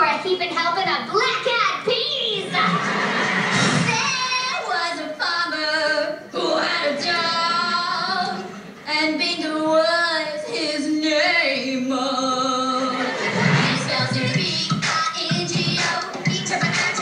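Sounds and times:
woman singing pop tune: 3.8 - 17.0.

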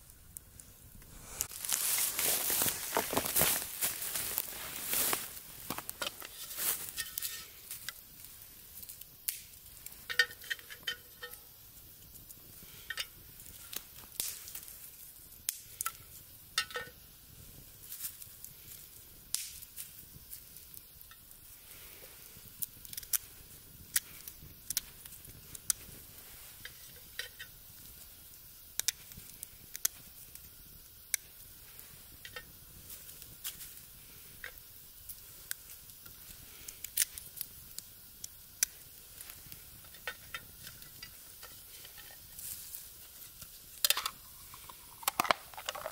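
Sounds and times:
wood fire crackling: 0.0 - 45.9
metal tins clinking: 43.9 - 45.9.

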